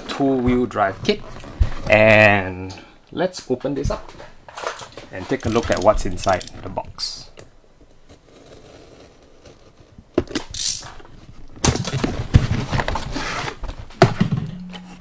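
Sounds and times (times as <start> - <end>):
cardboard rustling and scraping: 7.9 - 14.2.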